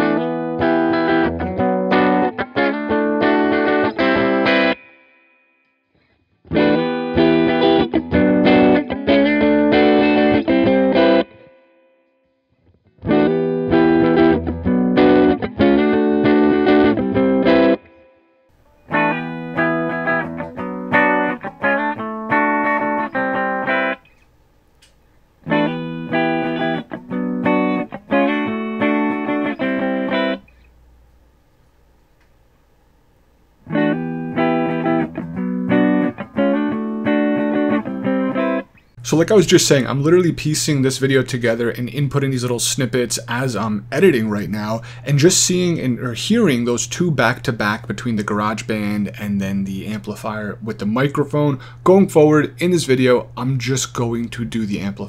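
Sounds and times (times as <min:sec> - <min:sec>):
electric guitar strumming chords: 0:00.0 - 0:05.7, 0:06.4 - 0:24.1, 0:25.4 - 0:30.5, 0:33.6 - 0:55.0
faint low amp hum: 0:18.6 - 0:55.0.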